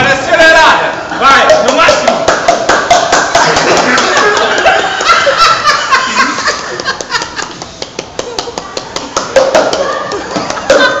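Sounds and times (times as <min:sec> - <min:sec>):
laughter: 0:02.9 - 0:07.6, 0:09.4 - 0:11.0.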